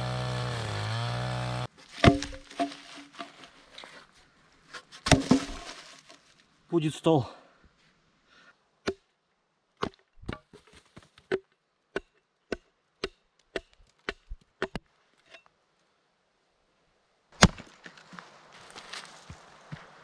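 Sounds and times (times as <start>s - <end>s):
hand tool striking deadwood: 0.1s - 3.5s, 5.0s - 5.8s, 11.3s - 14.8s
rustling: 1.7s - 6.5s.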